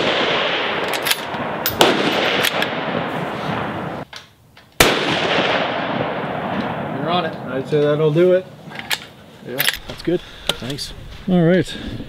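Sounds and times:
rifle shot with echo: 0:00.0 - 0:04.0, 0:04.8 - 0:07.7.

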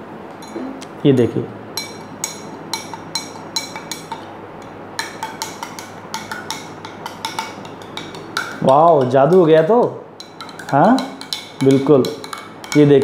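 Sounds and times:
spoon clinking in a glass: 0:01.8 - 0:04.3, 0:10.2 - 0:13.0.

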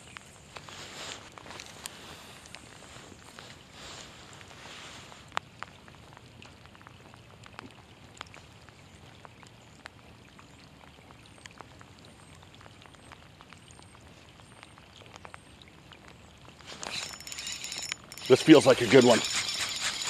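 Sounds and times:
light rain falling: 0:00.0 - 0:19.8
drops ticking nearby: 0:05.3 - 0:20.0.

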